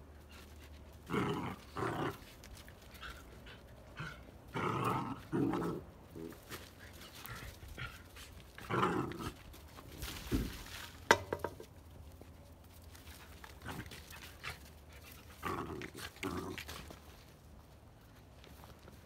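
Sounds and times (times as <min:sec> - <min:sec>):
puppies growling and grunting: 0:01.0 - 0:06.6, 0:07.3 - 0:09.6, 0:13.4 - 0:17.1.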